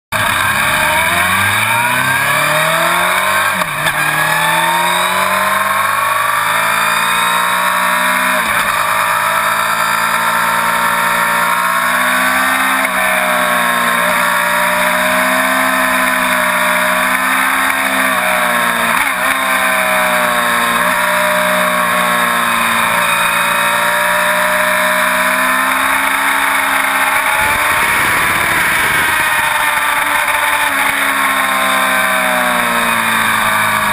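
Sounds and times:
motorcycle engine accelerating hard: 0.1s - 33.9s
wind noise on microphone: 27.4s - 29.8s.

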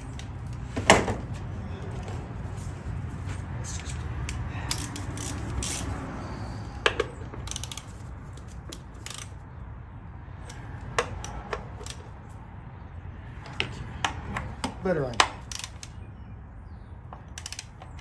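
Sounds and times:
ratchet wrench clicking: 4.3s - 6.0s, 6.8s - 9.4s, 10.5s - 12.2s, 15.1s - 16.0s, 17.2s - 18.0s.

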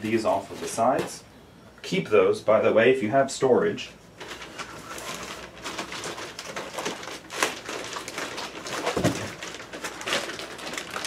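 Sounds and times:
plastic wrap and foam rustling: 0.0s - 1.2s, 4.2s - 11.0s.

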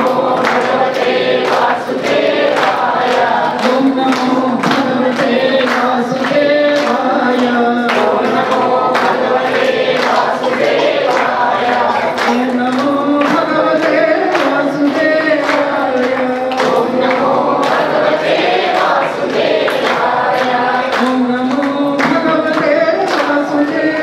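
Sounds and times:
group singing: 0.0s - 24.0s
hand clapping in time: 0.0s - 24.0s
woman singing into a microphone: 3.3s - 9.6s, 11.1s - 17.8s, 20.4s - 24.0s.

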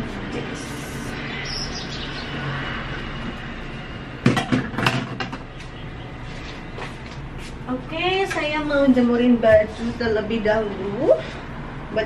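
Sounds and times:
steady background rumble: 0.0s - 12.0s
sharp knocks and rattles: 4.2s - 5.5s.

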